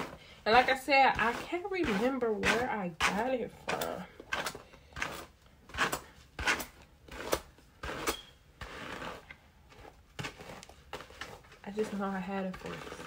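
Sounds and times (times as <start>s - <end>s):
hairbrush swishing through hair: 10.4s - 13.0s.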